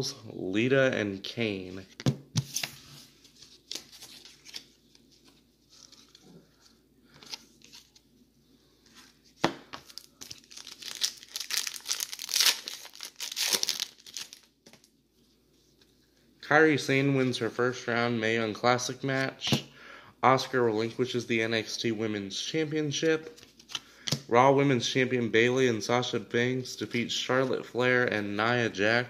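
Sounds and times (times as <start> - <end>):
wrapper tearing and crinkling: 9.9 - 14.9.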